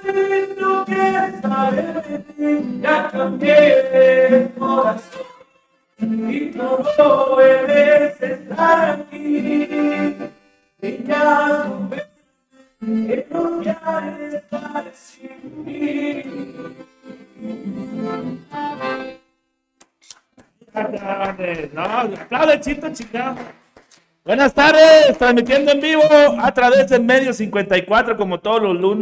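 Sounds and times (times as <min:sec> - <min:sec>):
men singing together: 0:00.0 - 0:05.1, 0:06.3 - 0:10.1, 0:10.8 - 0:12.0, 0:13.1 - 0:16.4
acoustic guitars: 0:00.0 - 0:19.3
accordion: 0:00.0 - 0:28.0.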